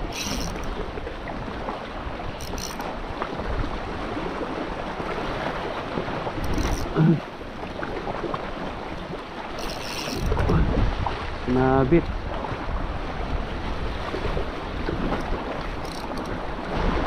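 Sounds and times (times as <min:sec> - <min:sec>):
wind on microphone: 0:07.9 - 0:17.0.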